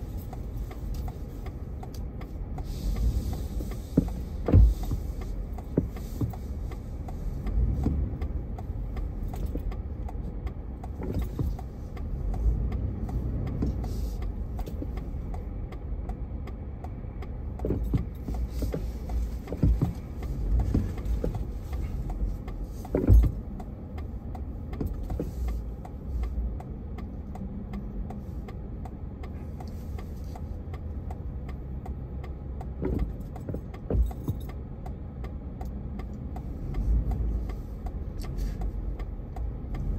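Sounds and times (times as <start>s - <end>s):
engine and road rumble: 0.0s - 39.9s.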